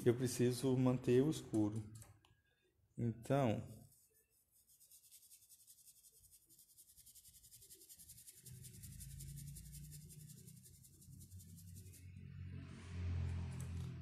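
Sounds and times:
paintbrush scratching on wood: 3.6s - 12.3s.

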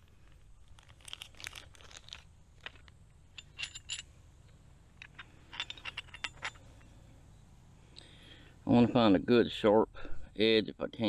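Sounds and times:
metal striker clinking on stone: 3.3s - 7.0s.

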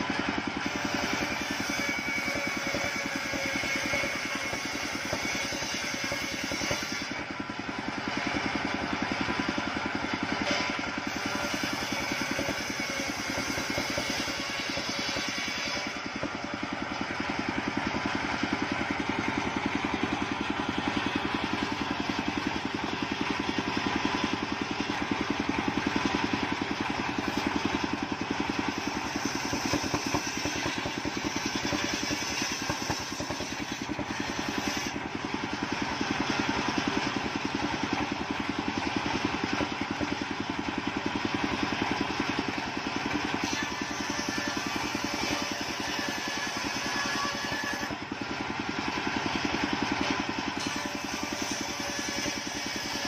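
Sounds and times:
circular saw ripping boards: 0.4s - 8.0s, 10.1s - 16.8s, 26.6s - 35.1s, 50.0s - 53.0s.

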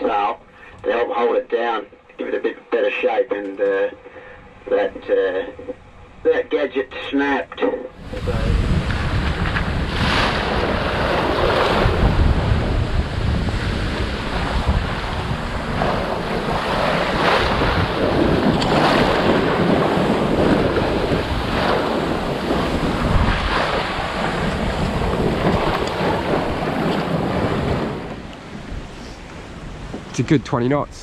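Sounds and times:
wind buffeting microphone: 8.0s - 31.0s
water splashing along hull: 8.6s - 30.0s.

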